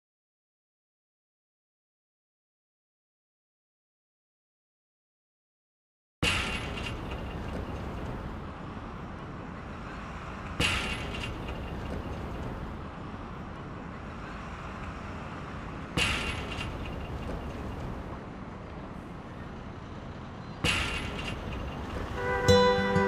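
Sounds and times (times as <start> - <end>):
traffic rumble: 6.2 - 23.0.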